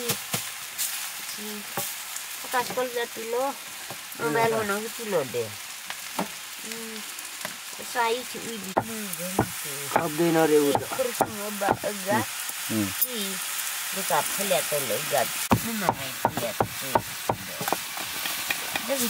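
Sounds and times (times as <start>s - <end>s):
vegetables sizzling in wok: 0.0s - 19.0s
voices: 1.3s - 1.8s, 2.4s - 5.6s, 7.8s - 17.8s, 18.5s - 19.0s
spatula scraping wok: 13.9s - 19.0s.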